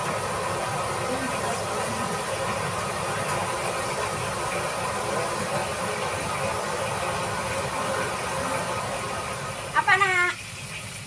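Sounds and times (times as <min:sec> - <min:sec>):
food sizzling in hot oil: 0:00.0 - 0:11.0.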